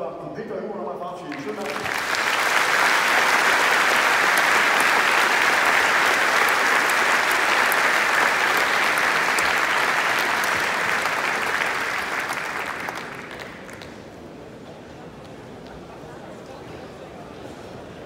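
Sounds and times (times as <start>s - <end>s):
large audience applauding: 1.3s - 14.2s.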